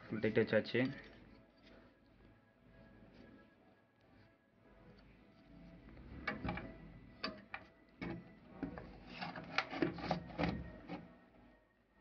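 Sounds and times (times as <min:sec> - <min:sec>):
rubbing on pulley: 0:08.7 - 0:11.1.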